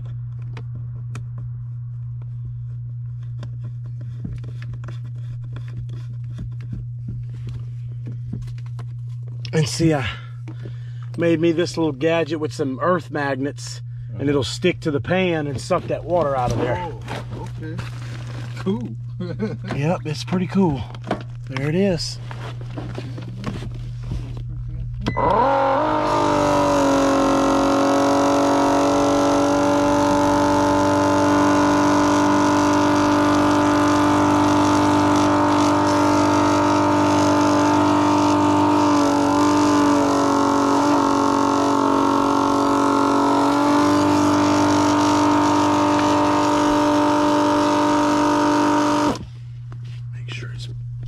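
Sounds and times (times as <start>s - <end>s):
pump motor whining: 25.0s - 49.3s.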